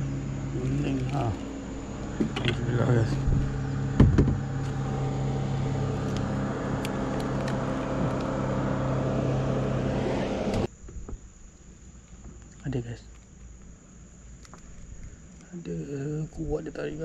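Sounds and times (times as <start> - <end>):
engine humming steadily: 0.0 - 10.7
sharp knocks: 3.2 - 4.5.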